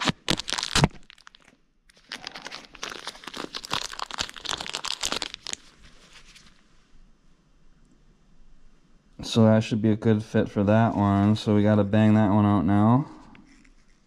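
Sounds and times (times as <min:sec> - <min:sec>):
plastic wrapper crinkling: 0:00.0 - 0:06.6.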